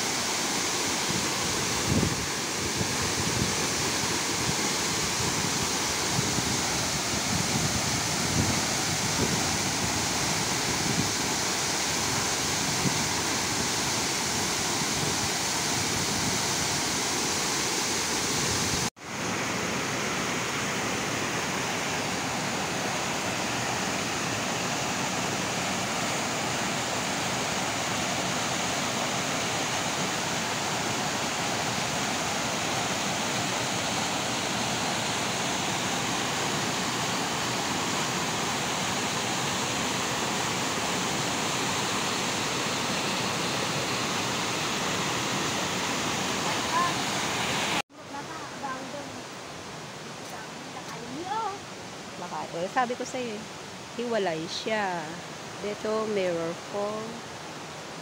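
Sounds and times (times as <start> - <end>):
waterfall rushing into pool: 0.0 - 58.0.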